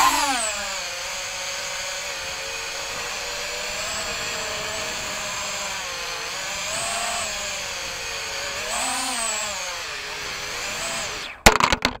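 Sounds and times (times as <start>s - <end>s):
drone propellers buzzing: 0.0s - 11.5s.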